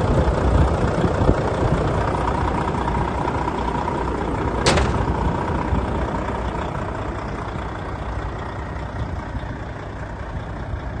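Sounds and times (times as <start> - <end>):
diesel truck engine idling: 0.0 - 11.0.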